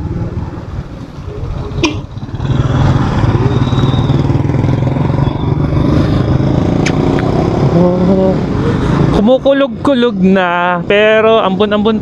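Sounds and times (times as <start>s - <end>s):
motorcycle engine under throttle: 2.0s - 8.4s
sharp click: 6.8s - 7.3s.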